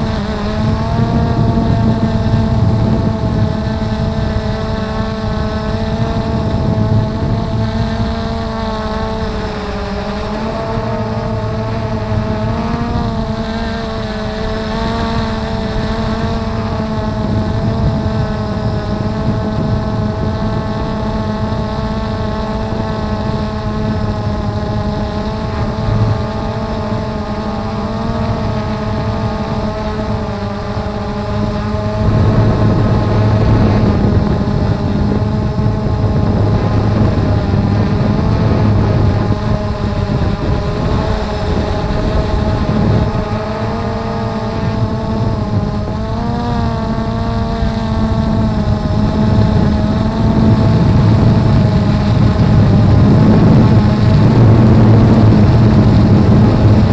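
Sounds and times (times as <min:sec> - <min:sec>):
drone propellers whirring: 0:00.0 - 0:56.9
low rushing noise: 0:30.1 - 0:46.1.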